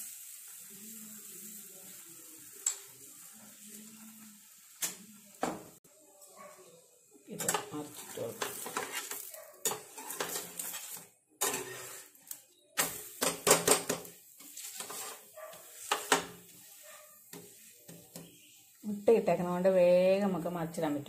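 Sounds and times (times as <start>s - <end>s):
spatula scraping frying pan: 7.4s - 19.7s.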